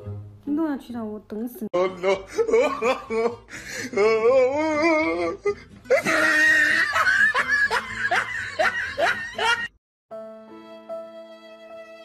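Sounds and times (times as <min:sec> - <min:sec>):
person laughing hard: 0:01.8 - 0:04.2, 0:05.4 - 0:09.7.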